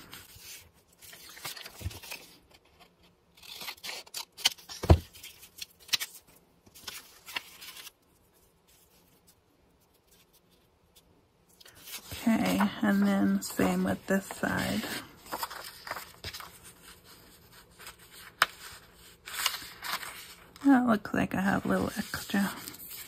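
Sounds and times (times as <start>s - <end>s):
paper rustling and sliding: 0.0s - 8.0s, 11.6s - 20.6s.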